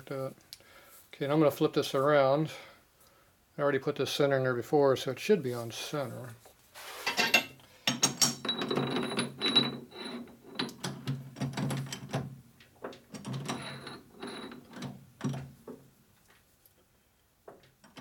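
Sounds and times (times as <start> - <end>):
metal clicks knocks and scrapes: 7.1 - 15.8.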